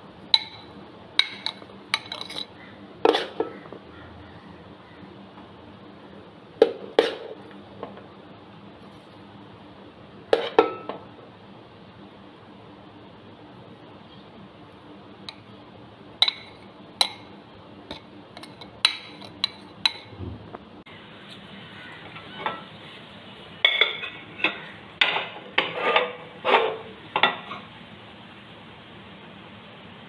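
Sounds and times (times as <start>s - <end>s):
spoon knocking on metal pot: 16.2s - 17.3s.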